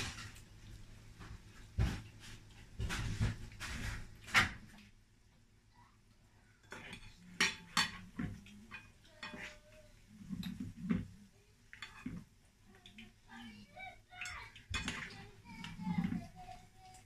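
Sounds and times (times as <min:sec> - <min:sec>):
metal spoon clinking and scraping: 0:06.6 - 0:09.6.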